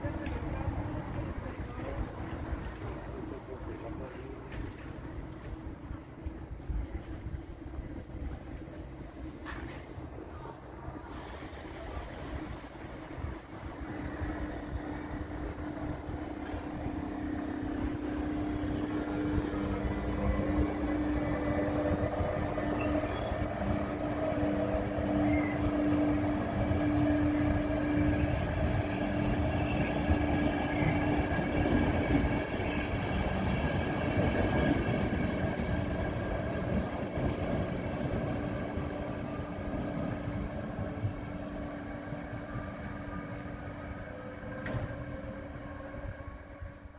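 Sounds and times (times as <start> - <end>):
train rolling past: 0.0 - 46.9
wheels on rails humming: 11.4 - 46.9.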